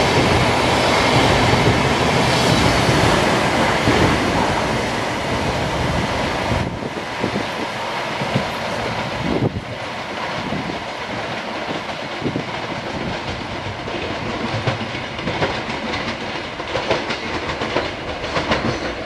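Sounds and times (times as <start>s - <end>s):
wheels clicking over rail joints: 6.6s - 19.0s.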